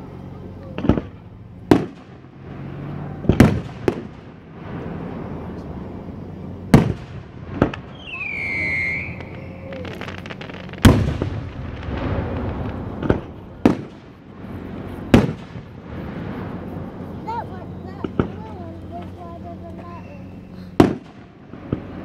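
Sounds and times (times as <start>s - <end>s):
fireworks crackle: 0.6s - 22.0s
fireworks bangs: 0.7s - 22.0s
high descending whistle: 7.9s - 10.2s.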